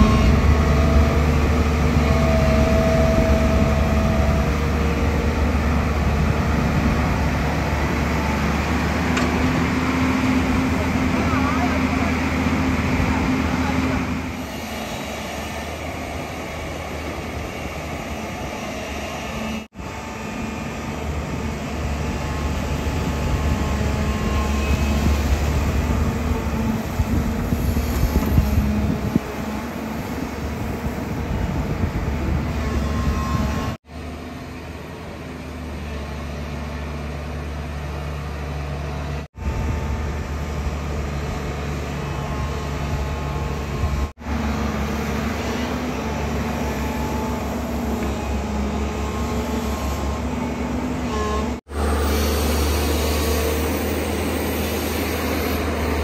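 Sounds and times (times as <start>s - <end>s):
excavator diesel engine running: 0.0s - 56.0s.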